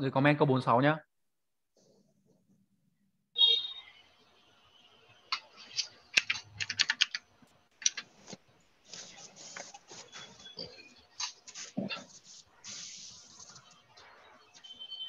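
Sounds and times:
keyboard typing: 0:05.3 - 0:08.3.

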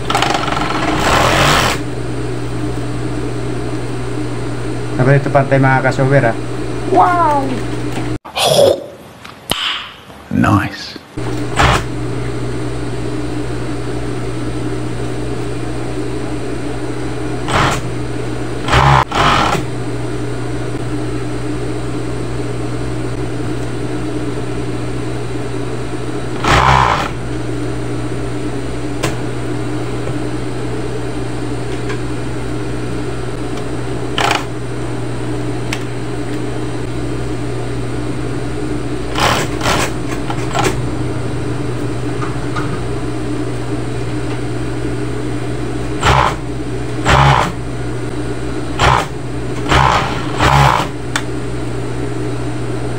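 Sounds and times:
overlock machine motor humming: 0:11.2 - 0:52.9.

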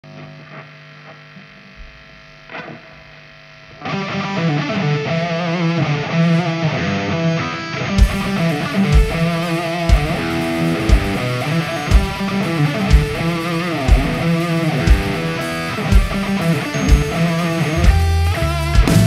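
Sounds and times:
amplifier hum: 0:00.0 - 0:19.0
electric guitar riff with bass: 0:01.4 - 0:19.0
faint plucked guitar notes: 0:08.0 - 0:19.0
heavy drum hit: 0:18.8 - 0:19.0.

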